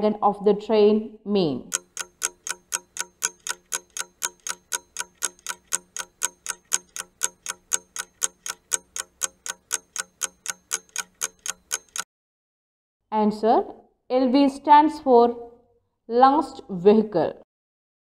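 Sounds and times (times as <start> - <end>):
rapid clock ticking: 1.7 - 12.1.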